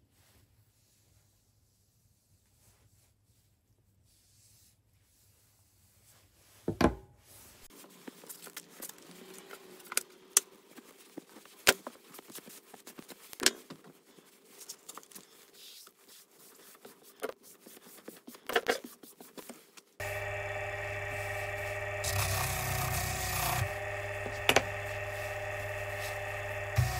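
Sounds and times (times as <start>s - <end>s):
cloth rubbing and wiping: 0.1s - 9.3s, 10.5s - 20.0s, 23.8s - 26.9s
sharp clicks and knocks: 24.4s - 24.7s.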